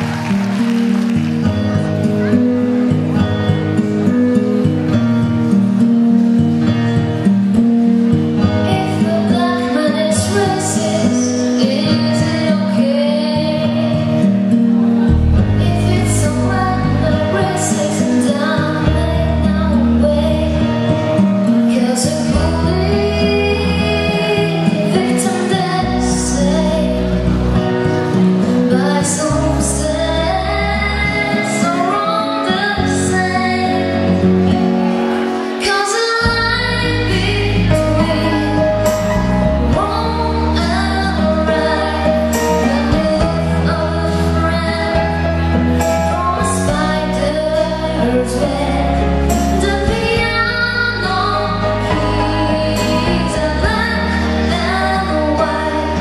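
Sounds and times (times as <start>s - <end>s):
instrumental backing with bass: 0.0s - 56.0s
girl singing into a microphone: 8.3s - 14.5s, 15.5s - 34.6s, 35.5s - 56.0s.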